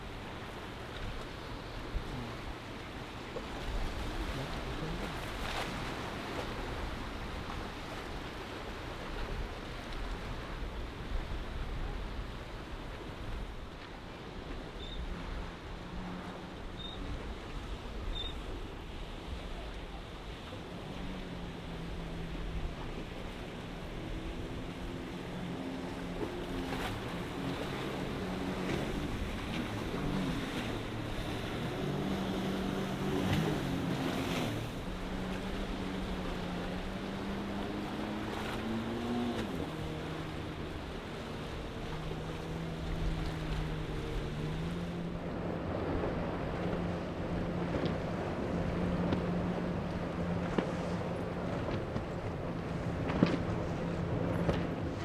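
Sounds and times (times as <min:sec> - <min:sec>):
surf on choppy sea: 0:00.0 - 0:55.0
water spray and waves: 0:00.0 - 0:55.0
watercraft engine running: 0:00.0 - 0:55.0
wind rumbling on microphone: 0:00.0 - 0:55.0.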